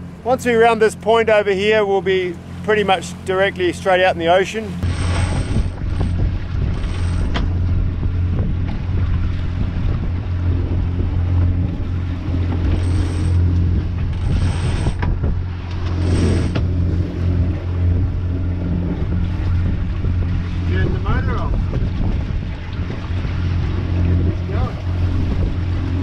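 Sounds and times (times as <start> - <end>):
boat engine droning: 0.0 - 26.0
water noise: 0.0 - 26.0
wind: 0.0 - 26.0
rope zipping while hauled: 4.8 - 6.1, 14.1 - 15.0, 15.8 - 16.6.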